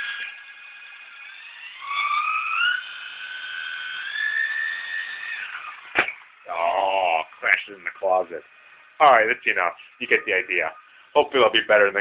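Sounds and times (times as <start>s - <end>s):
rc helicopter motor whining: 0.0s - 7.2s.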